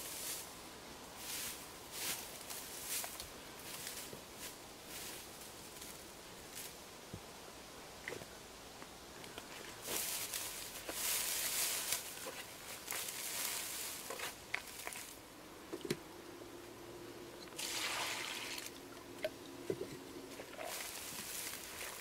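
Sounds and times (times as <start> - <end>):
bucket poured into wheelbarrow: 17.6 - 18.8, 20.3 - 22.0.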